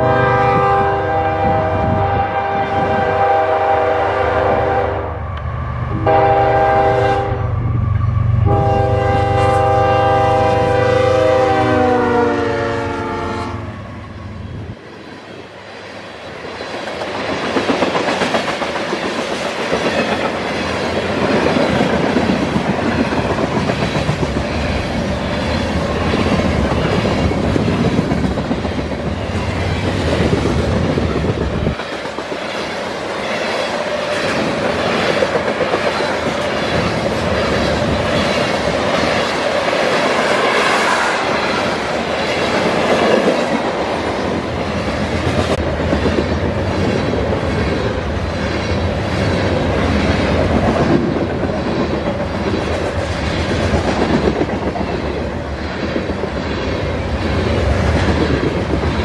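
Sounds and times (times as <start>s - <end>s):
locomotive air horn: 0.0s - 5.2s, 5.9s - 7.5s, 8.4s - 13.7s.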